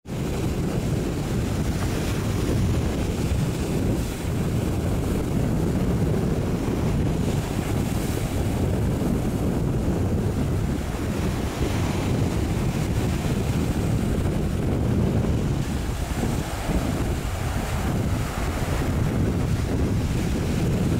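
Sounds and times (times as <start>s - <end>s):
choppy water: 0.0s - 20.9s
wind noise on microphone: 0.0s - 20.9s.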